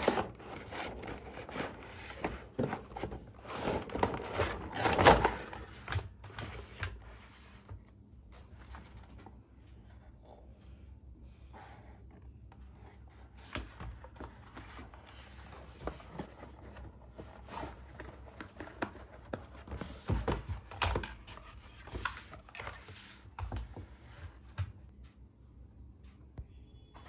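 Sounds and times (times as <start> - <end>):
cardboard packaging rustling: 0.0 - 7.0.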